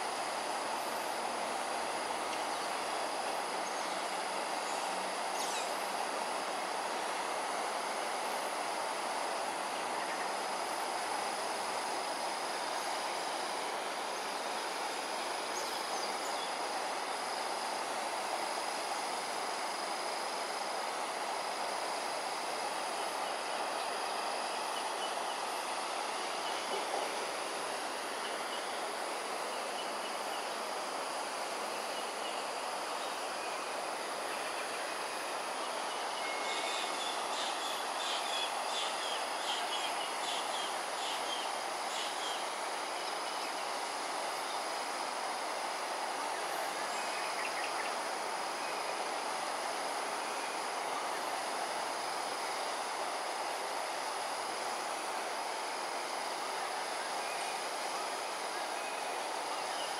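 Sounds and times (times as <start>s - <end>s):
high insect drone: 0.0s - 59.9s
outdoor background hum: 0.0s - 59.9s.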